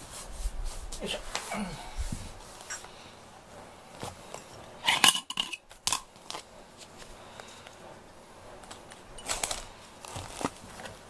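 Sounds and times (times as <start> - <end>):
paw rustling on cardboard: 8.6 - 11.0.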